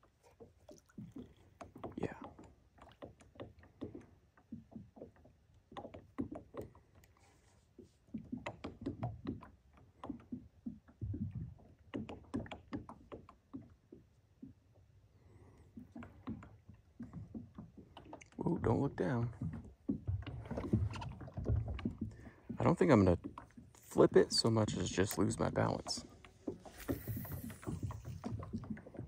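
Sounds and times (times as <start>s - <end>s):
small waves lapping against hull: 0.0s - 29.0s.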